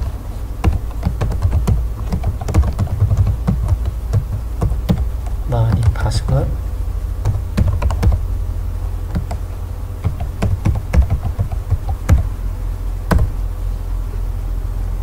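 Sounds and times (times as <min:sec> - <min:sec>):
computer keyboard keystrokes: 0:00.0 - 0:06.4, 0:07.2 - 0:08.2, 0:09.1 - 0:12.3, 0:13.1 - 0:13.3
steady low hum: 0:00.0 - 0:15.0.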